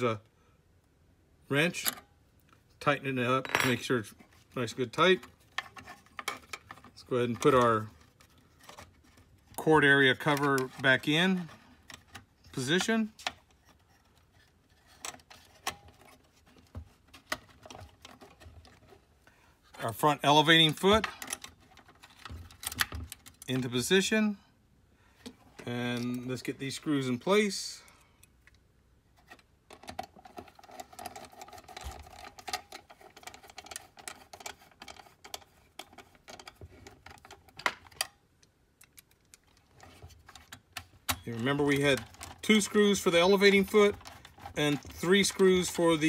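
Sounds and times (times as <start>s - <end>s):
plastic and metal parts clicking: 5.1s - 19.0s, 20.6s - 23.6s, 29.2s - 46.0s
sharp clicks and rattles: 29.7s - 46.0s.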